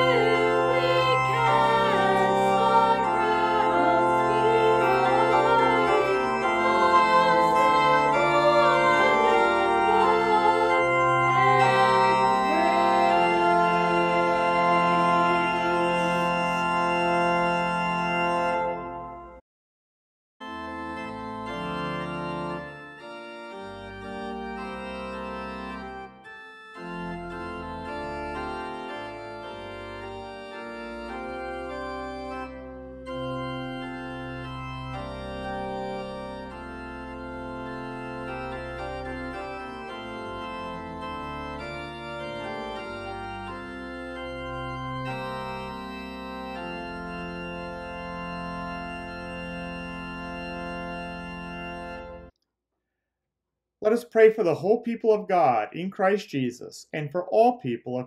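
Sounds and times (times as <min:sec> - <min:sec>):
organ playing slow chords: 0:00.0 - 0:19.4, 0:20.4 - 0:52.3.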